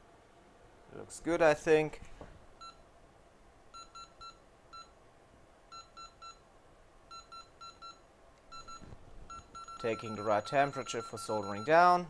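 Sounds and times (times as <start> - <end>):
short electronic beeps: 7.1 - 11.8.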